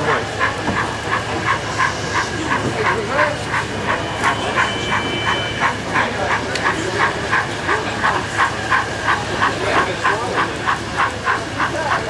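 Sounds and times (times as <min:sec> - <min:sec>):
model steam locomotive chuffing: 0:00.0 - 0:12.0.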